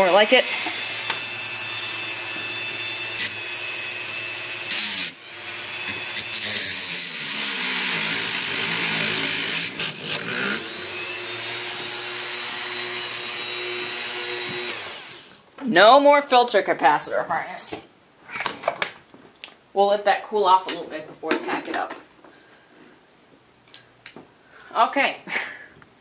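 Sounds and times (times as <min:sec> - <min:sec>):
hand tool motor running: 0:00.1 - 0:15.4.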